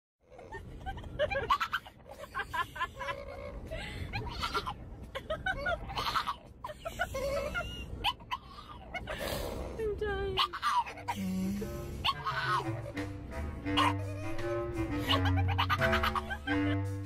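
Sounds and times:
puppy whining and yelping: 5.4 - 11.1, 12.0 - 13.0.

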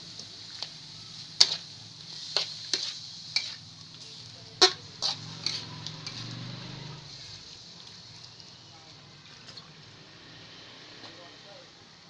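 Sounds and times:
metal spatula scraping wok: 0.2 - 8.3.

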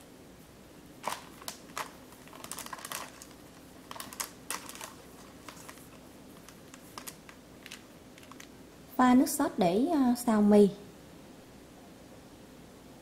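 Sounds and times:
dry noodles rustling and crackling: 1.0 - 8.6.

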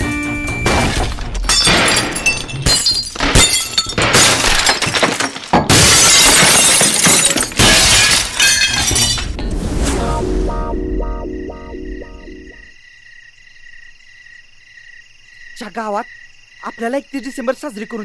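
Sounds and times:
objects crashing: 0.6 - 10.1
glass shattering: 0.7 - 9.3.

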